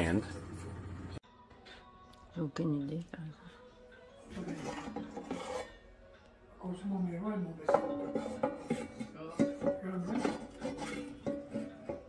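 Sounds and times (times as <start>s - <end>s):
metal rack and pot clinking: 7.7s - 12.0s.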